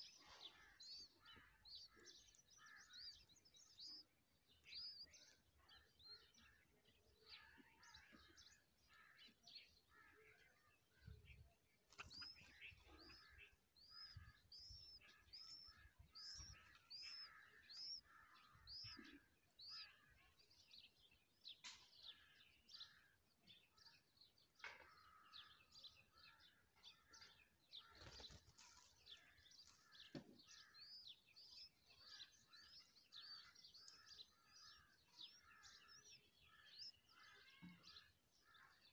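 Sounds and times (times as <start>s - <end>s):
low bird twittering: 11.0s - 20.3s
high bird chirps: 11.3s - 20.4s.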